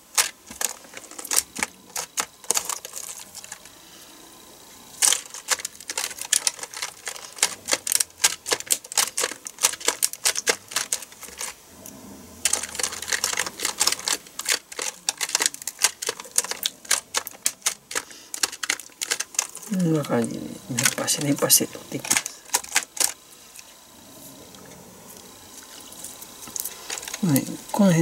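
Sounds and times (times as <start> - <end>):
keyboard keys clacking: 5.0 - 11.6, 12.4 - 23.2.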